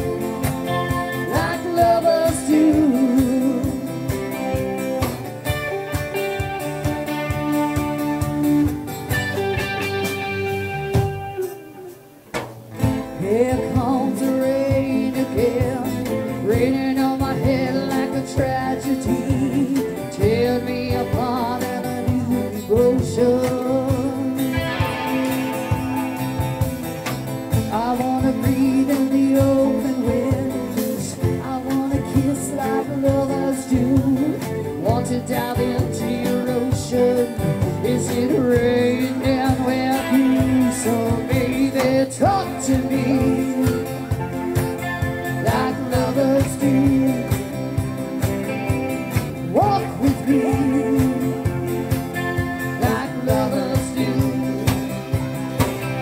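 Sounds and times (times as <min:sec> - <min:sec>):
rock band playing: 0:00.0 - 0:56.0
woman singing: 0:00.7 - 0:04.3, 0:13.2 - 0:25.8, 0:27.7 - 0:44.3, 0:45.3 - 0:47.8, 0:49.4 - 0:51.6, 0:52.7 - 0:54.9.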